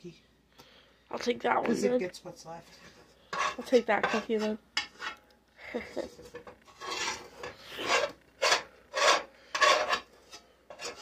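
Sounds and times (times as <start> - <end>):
spatula scraping a pot: 2.6 - 11.0.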